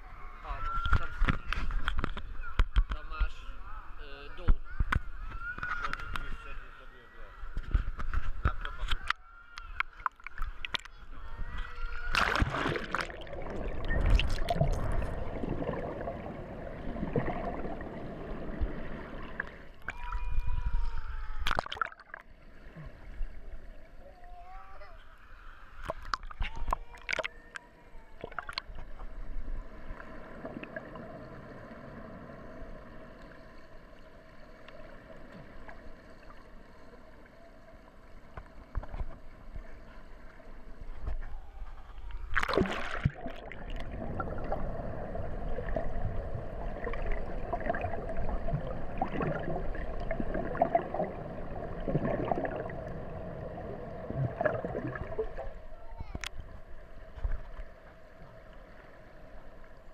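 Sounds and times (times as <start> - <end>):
water sloshing and gurgling: 0.0 - 59.9
loud underwater splash: 12.1 - 16.3, 42.3 - 44.7.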